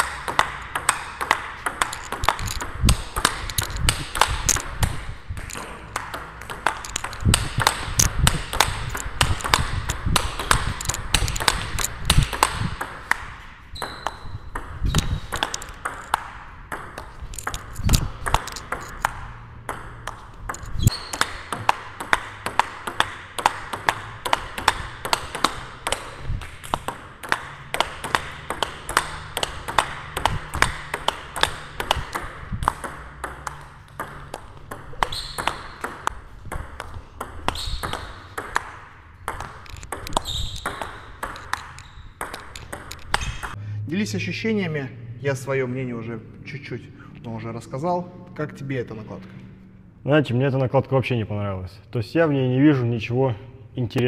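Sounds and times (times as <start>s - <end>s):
table tennis ball clicking: 0.0s - 43.6s.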